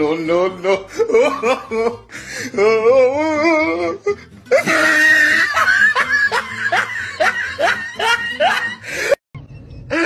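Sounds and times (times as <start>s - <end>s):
voice wailing: 2.6s - 5.7s.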